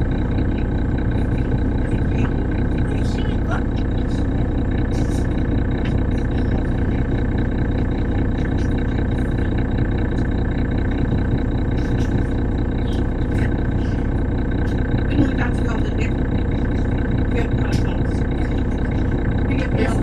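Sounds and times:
diesel bus engine drone: 0.0 - 20.0.

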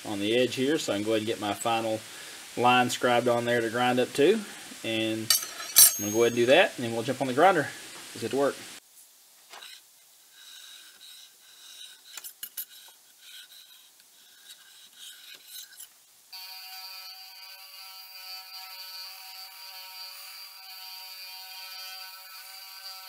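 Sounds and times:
scribe scratching steel: 5.3 - 6.6, 9.6 - 23.0
belt grinder whining: 16.4 - 23.0.

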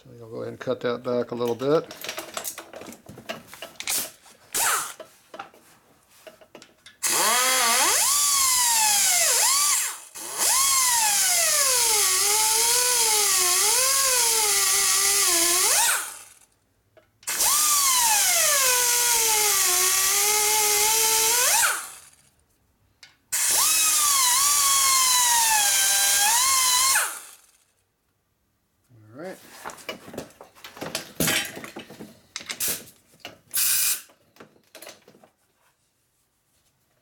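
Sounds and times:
die grinder cutting metal: 4.6 - 5.0, 7.0 - 16.3, 17.3 - 22.0, 23.4 - 27.5.

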